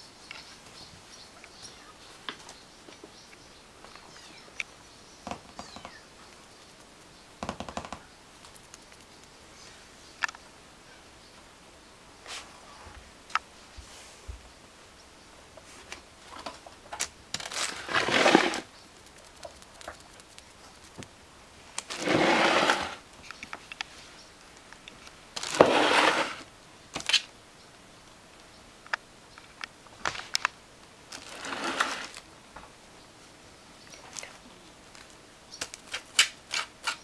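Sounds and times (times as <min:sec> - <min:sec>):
plastic bag rustling and crinkling: 0:17.3 - 0:18.7, 0:21.8 - 0:23.0, 0:25.4 - 0:26.4, 0:31.1 - 0:32.2.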